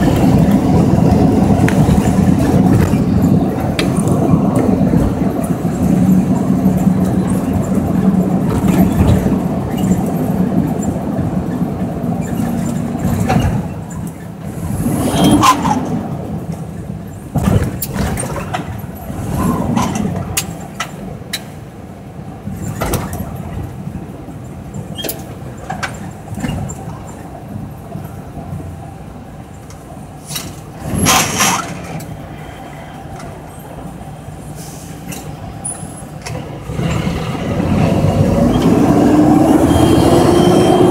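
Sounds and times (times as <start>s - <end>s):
diesel truck engine drone: 30.2s - 40.9s.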